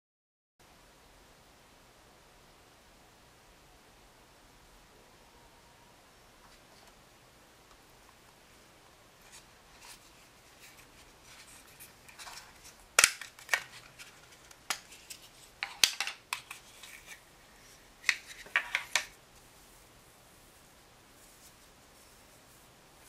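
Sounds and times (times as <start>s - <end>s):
paper crinkling: 9.2s - 20.5s
plastic toy clicks and snaps: 13.0s - 13.7s.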